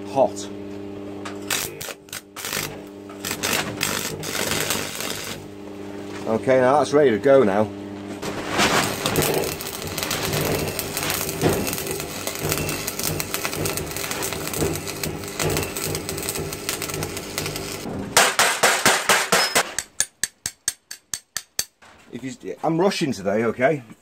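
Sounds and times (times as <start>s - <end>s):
welder low hum: 1.2s - 18.2s
welding arc crackling: 1.4s - 6.2s, 8.2s - 19.6s.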